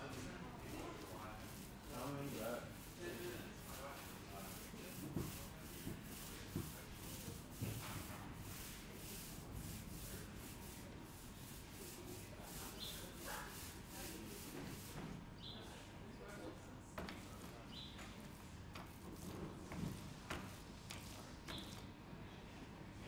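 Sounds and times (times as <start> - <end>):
paint roller rubbing on wall: 0.2 - 15.2.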